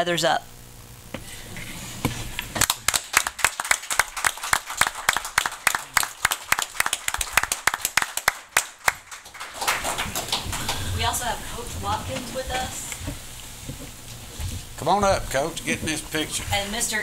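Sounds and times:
small group applauding: 2.5 - 11.4.

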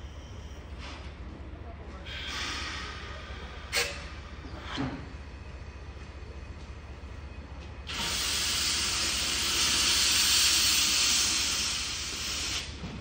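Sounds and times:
steam locomotive venting steam: 2.0 - 5.1, 7.9 - 13.0.

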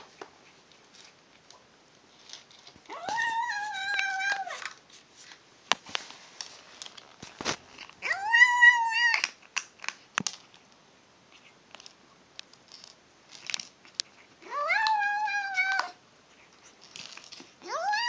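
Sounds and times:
kitten meowing: 2.9 - 4.6, 17.6 - 18.0
kibble crunching: 6.4 - 10.6.

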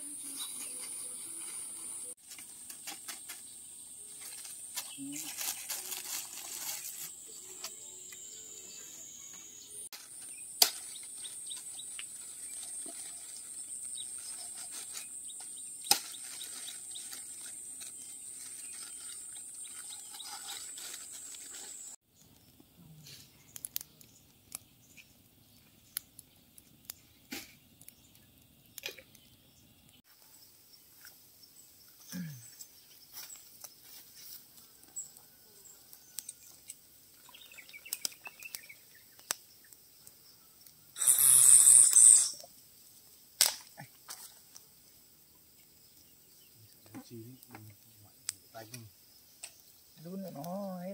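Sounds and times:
high-pitched insect buzz: 3.9 - 9.9, 41.0 - 42.5.

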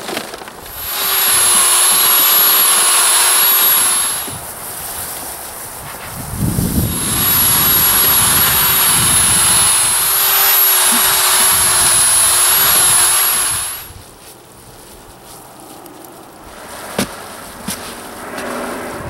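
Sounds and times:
rustling of mix worked by hand: 0.0 - 18.7
electric drill mixer whining: 0.7 - 4.4, 6.7 - 14.0.

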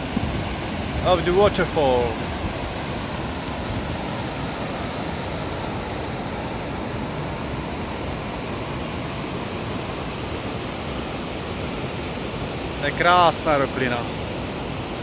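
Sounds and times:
wind on microphone: 0.0 - 10.1
waterfall rushing: 0.0 - 15.0.

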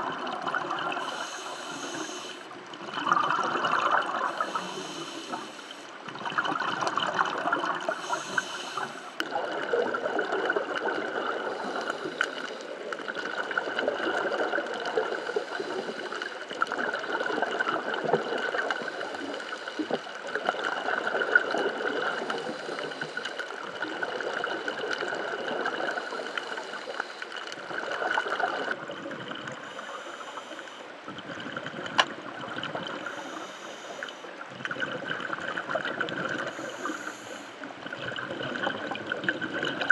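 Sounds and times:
underwater water wash: 0.0 - 39.9.

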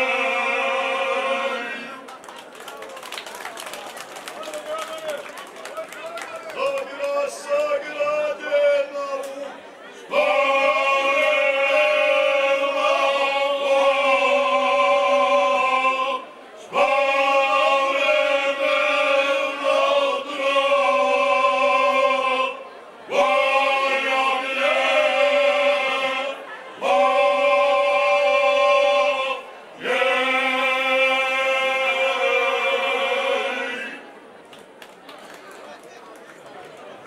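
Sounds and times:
men singing in close harmony: 0.0 - 2.0, 7.0 - 9.4, 10.1 - 34.1.

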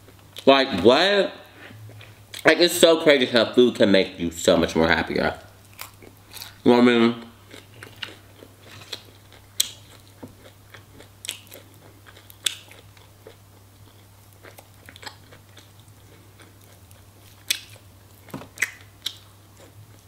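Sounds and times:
chewing crunchy food: 5.7 - 6.6, 7.2 - 20.0.

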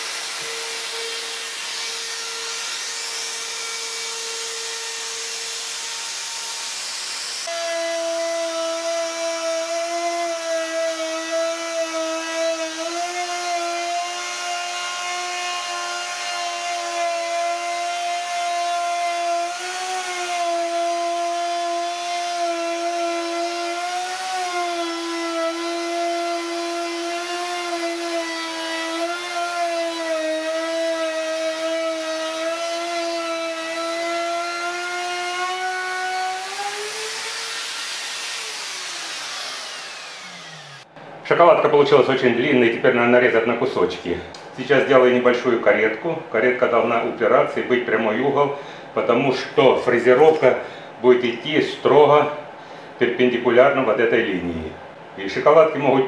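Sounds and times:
dust extraction fan hissing: 0.0 - 7.6
router high whine: 0.0 - 14.1, 23.5 - 40.9.

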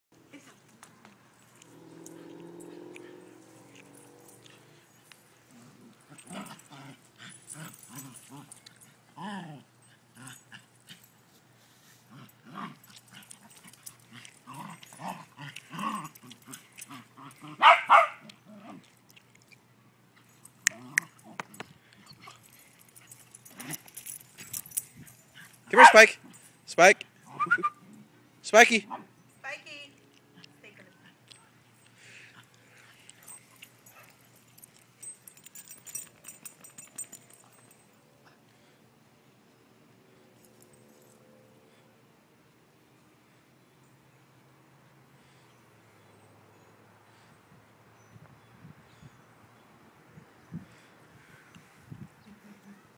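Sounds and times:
dog tags jingling: 1.7 - 5.1, 6.0 - 9.0, 12.7 - 18.1, 20.2 - 27.1, 31.2 - 38.1
dogs yipping and barking: 12.2 - 18.8, 20.2 - 26.5, 27.2 - 28.0.

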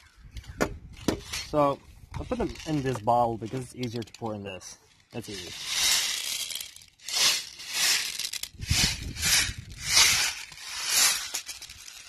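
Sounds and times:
plastic pellets rattling: 1.0 - 12.0.

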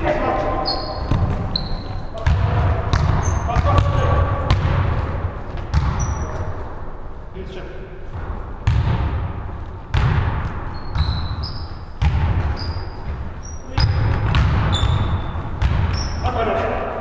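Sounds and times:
sneaker squeaks: 0.0 - 4.6, 5.6 - 6.6, 10.4 - 16.6
basketball bouncing on wooden floor: 0.8 - 6.3, 8.2 - 16.3.

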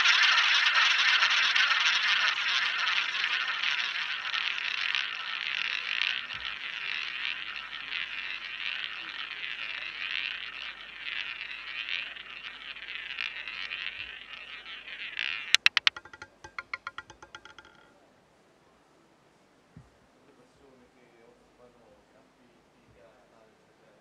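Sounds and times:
roulette ball rolling on wheel: 0.0 - 17.9.

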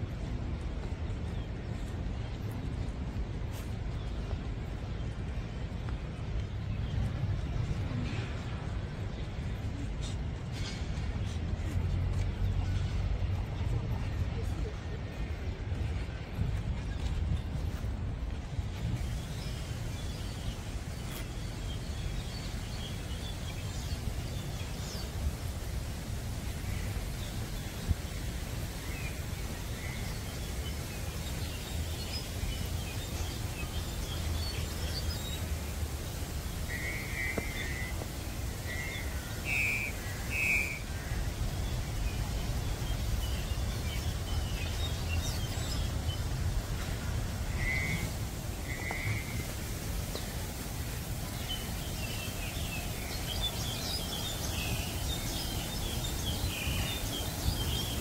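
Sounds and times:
low outdoor rumble: 0.0 - 53.2
birds chirping and twittering: 19.0 - 58.0.

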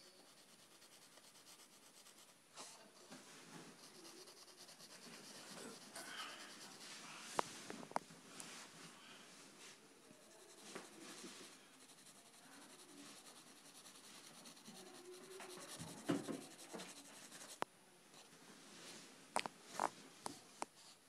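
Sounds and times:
pencil scratching on paper: 0.0 - 3.0, 3.6 - 7.1, 10.0 - 17.6.

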